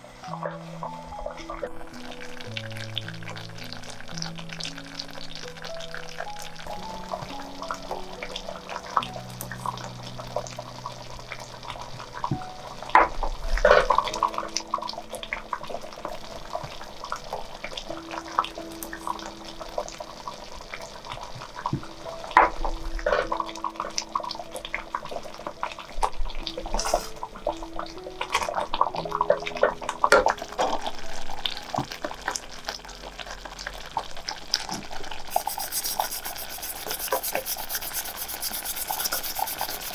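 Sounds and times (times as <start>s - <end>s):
soft background music: 0.0s - 39.9s
wooden spoon stirring: 35.2s - 39.9s.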